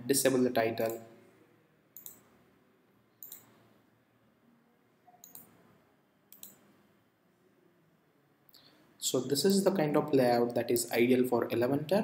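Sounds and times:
faint computer clicks: 0:02.0 - 0:02.3, 0:03.2 - 0:03.6, 0:05.2 - 0:05.6, 0:06.3 - 0:06.8.

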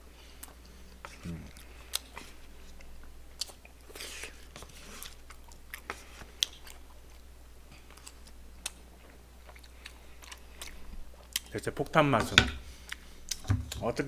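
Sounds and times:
man chewing: 0:00.1 - 0:11.5, 0:12.7 - 0:13.5.

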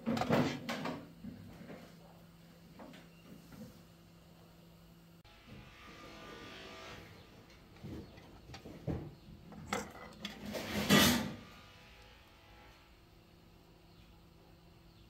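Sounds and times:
metal parts clattering: 0:09.6 - 0:11.3.

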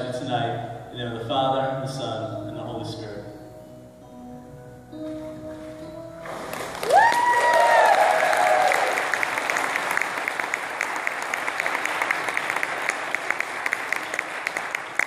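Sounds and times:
hands clapping: 0:06.5 - 0:15.0
people cheering: 0:06.8 - 0:15.0.

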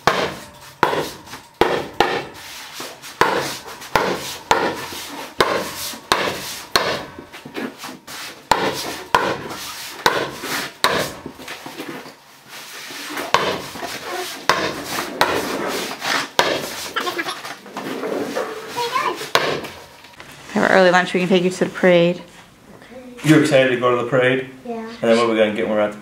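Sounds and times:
hammer striking: 0:00.0 - 0:07.7, 0:08.4 - 0:11.6, 0:13.3 - 0:15.6, 0:16.3 - 0:16.9, 0:19.2 - 0:20.0.

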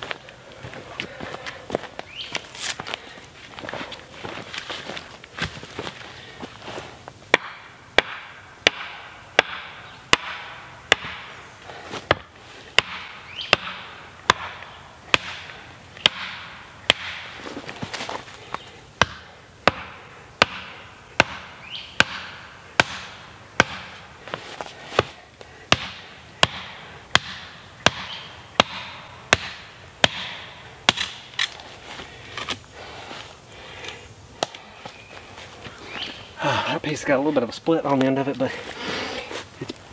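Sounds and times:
hatchet pounding wooden pole: 0:07.3 - 0:11.3, 0:12.1 - 0:17.3, 0:19.0 - 0:24.0, 0:25.0 - 0:31.2.

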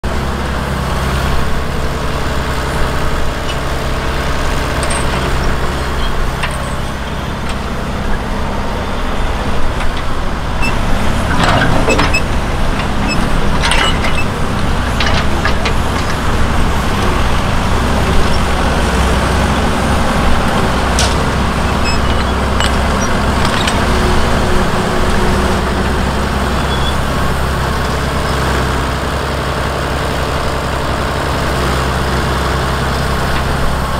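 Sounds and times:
engine running steadily: 0:00.0 - 0:33.9
chains and pulleys rattling: 0:04.2 - 0:07.8, 0:09.7 - 0:19.3, 0:20.0 - 0:24.8.

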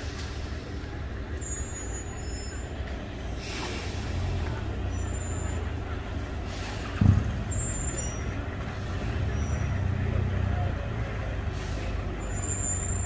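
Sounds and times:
truck engine rumbling: 0:00.0 - 0:13.0
loud thump: 0:07.0 - 0:07.6.

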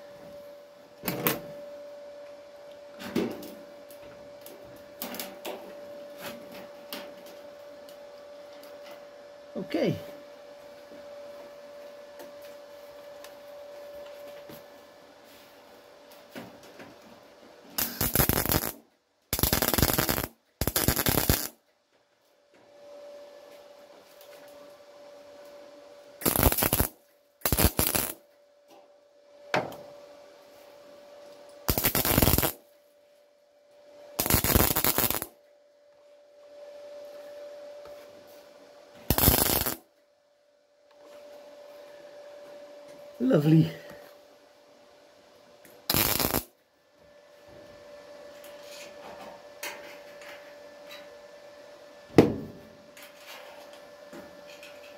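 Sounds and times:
faint steady hum: 0:00.0 - 0:54.9
welder crackling bursts: 0:17.8 - 0:21.6, 0:26.2 - 0:28.2, 0:31.7 - 0:32.6, 0:34.2 - 0:35.3, 0:39.1 - 0:39.9, 0:45.9 - 0:46.6.

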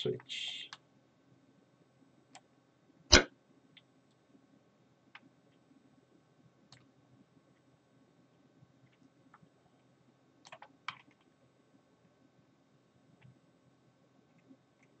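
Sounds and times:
faint steady hum: 0:00.0 - 0:15.0
computer mouse clicks: 0:10.4 - 0:11.3.

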